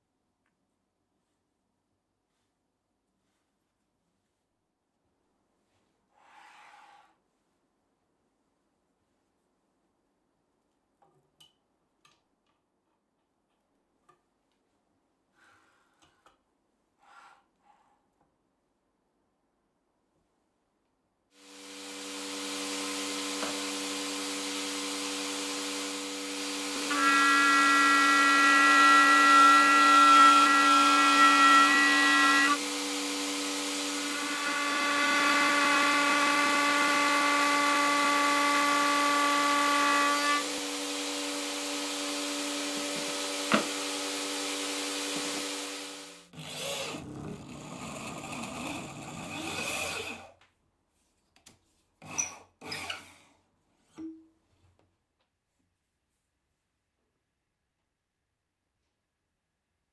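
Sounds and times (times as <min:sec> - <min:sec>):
power drill boring into wood: 0:21.4 - 0:50.3, 0:52.0 - 0:53.1
router cutting plywood: 0:21.4 - 0:50.3.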